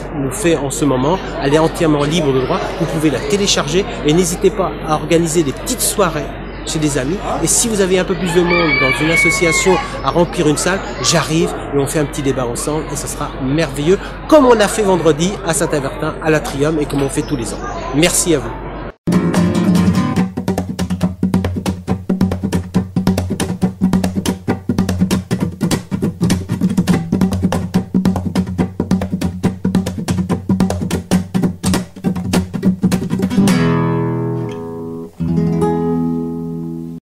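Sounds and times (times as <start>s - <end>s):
acoustic guitar strumming: 19.1s - 37.0s.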